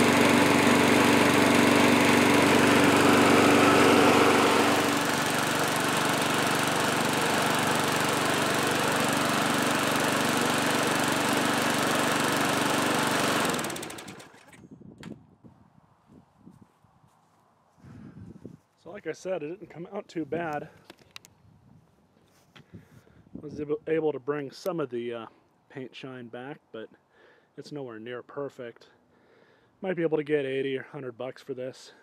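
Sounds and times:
lawn mower engine running: 0:00.0 - 0:14.6.

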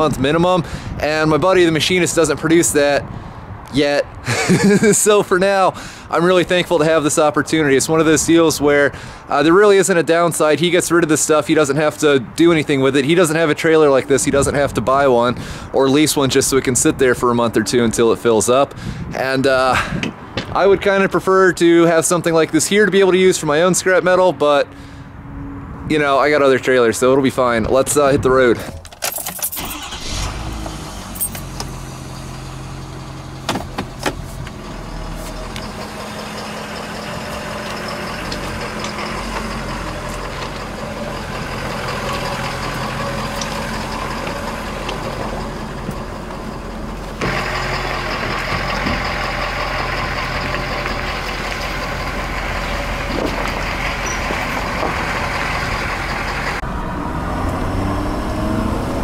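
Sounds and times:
road and cab noise: 0:00.0 - 0:59.0
pickup truck engine running: 0:29.6 - 0:57.1.

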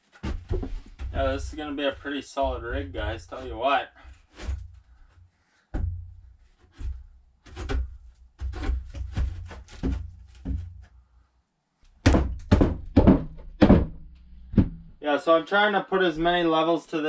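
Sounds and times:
wooden boards knocking together: 0:00.1 - 0:01.4, 0:06.7 - 0:10.9, 0:12.0 - 0:14.8.

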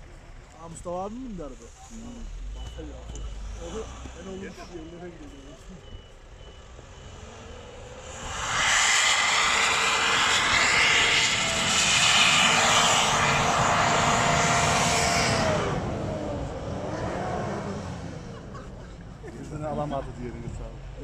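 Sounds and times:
truck engine revving hard: 0:06.5 - 0:18.8.

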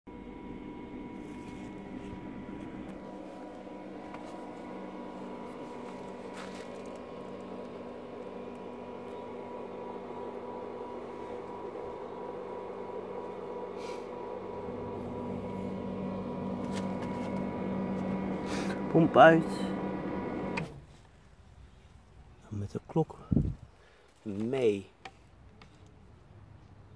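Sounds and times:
pump motor humming: 0:00.1 - 0:20.8.

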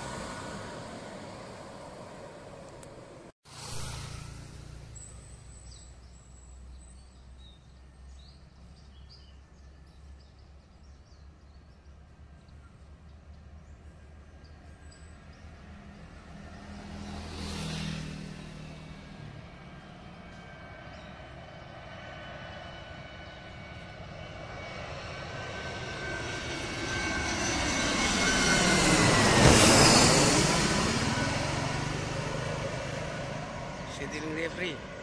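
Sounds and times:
distant jet airliner rumble: 0:00.0 - 0:07.4, 0:08.0 - 0:35.0
outdoor background noise: 0:00.0 - 0:35.0
small birds chirping: 0:04.9 - 0:16.8.

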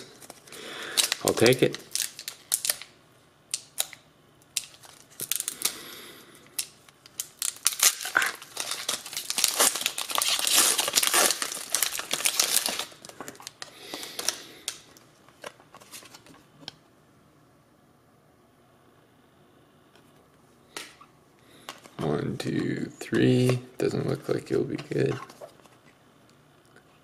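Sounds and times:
foil wrapper tearing and crinkling: 0:00.8 - 0:04.0, 0:04.6 - 0:05.8, 0:06.6 - 0:14.9.

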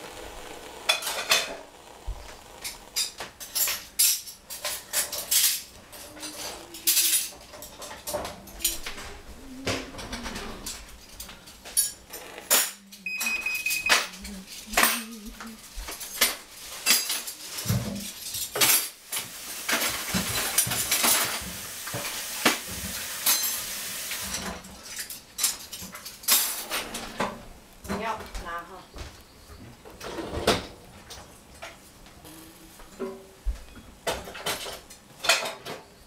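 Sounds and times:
hiss: 0:00.0 - 0:13.0, 0:13.8 - 0:27.8
dishes and utensils clinking: 0:02.8 - 0:28.2, 0:32.9 - 0:35.9
high beep: 0:13.0 - 0:14.0, 0:32.3 - 0:32.8.

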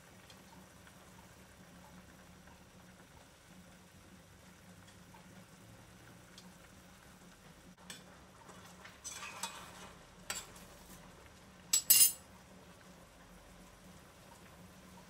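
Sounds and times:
liquid simmering faintly: 0:00.0 - 0:15.0
metal spoon scraping a pot: 0:09.0 - 0:10.5.

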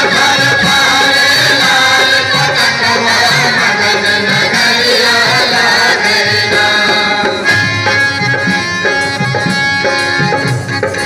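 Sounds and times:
men singing in a group: 0:00.0 - 0:08.6
harmonium chords: 0:00.0 - 0:11.0
tabla beat: 0:00.0 - 0:11.0.

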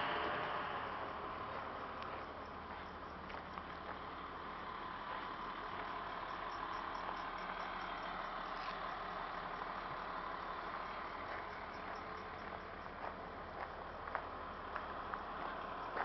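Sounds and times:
bus engine idling: 0:00.0 - 0:16.0.

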